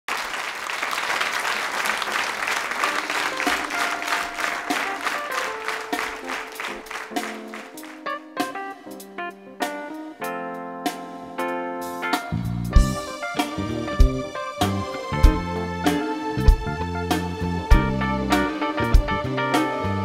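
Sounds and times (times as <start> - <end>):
studio audience applauding: 0.1 - 8.5.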